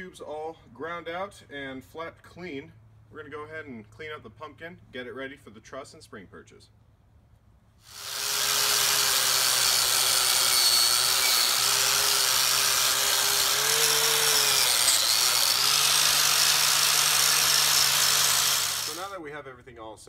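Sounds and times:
angle grinder scuffing metal: 0:07.9 - 0:19.1.

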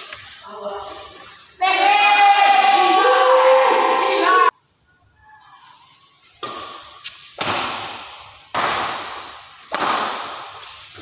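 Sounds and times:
racket smacking shuttlecock: 0:06.3 - 0:11.0.

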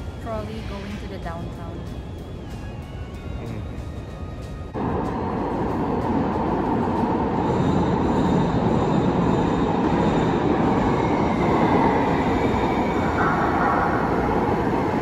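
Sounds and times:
trolley wheels rumbling on rail: 0:00.0 - 0:15.0.

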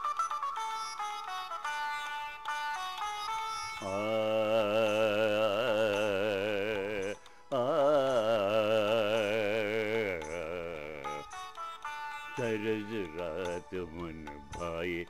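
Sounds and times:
man singing with vibrato: 0:03.6 - 0:15.0.

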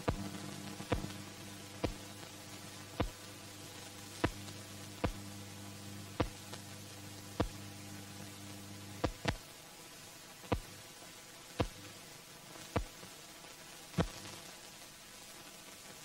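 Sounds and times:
low hum: 0:00.0 - 0:09.4
film soundtrack hiss: 0:00.0 - 0:16.0
sharp pops and clicks: 0:09.0 - 0:09.4.

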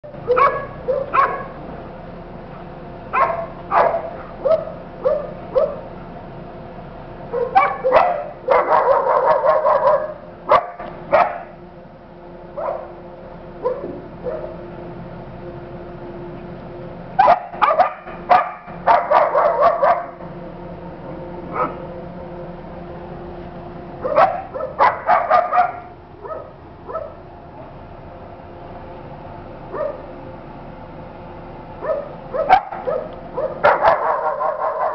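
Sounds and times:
small dog barking and yipping: 0:00.2 - 0:01.6, 0:03.1 - 0:05.9, 0:07.3 - 0:11.5, 0:12.6 - 0:13.0, 0:13.6 - 0:14.6, 0:17.2 - 0:20.2, 0:21.5 - 0:21.8, 0:24.0 - 0:27.2, 0:29.7 - 0:30.0, 0:31.8 - 0:34.9.

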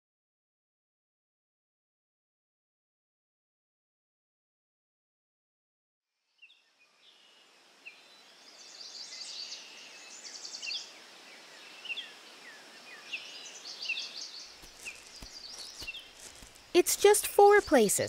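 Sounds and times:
soft even hiss: 0:06.4 - 0:17.1
birds chirping and trilling: 0:06.4 - 0:18.0.

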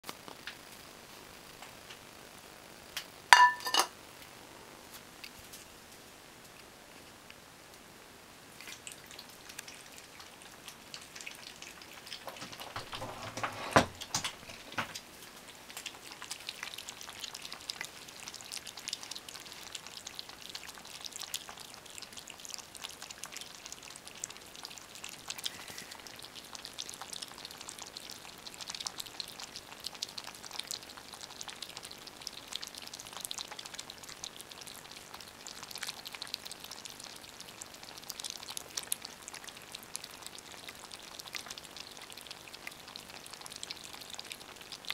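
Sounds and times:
kittens lapping milk: 0:08.5 - 0:13.4, 0:14.0 - 0:44.9.

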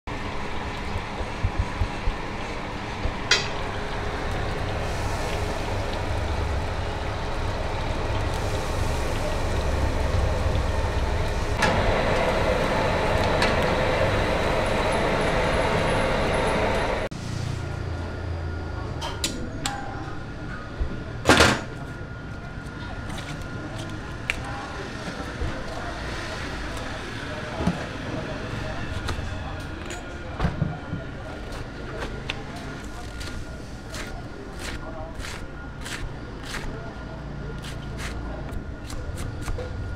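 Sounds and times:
hot oil crackling and sizzling: 0:03.0 - 0:13.4.

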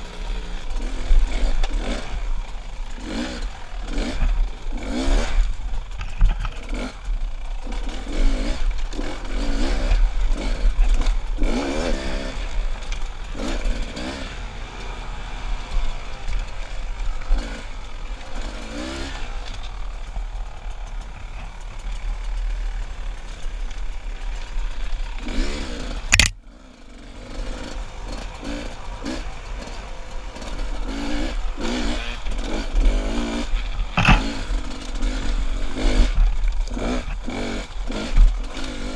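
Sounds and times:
dirt bike engine revving: 0:00.0 - 0:38.9
sharp click: 0:26.1 - 0:26.4
bike clatter: 0:33.7 - 0:34.4.

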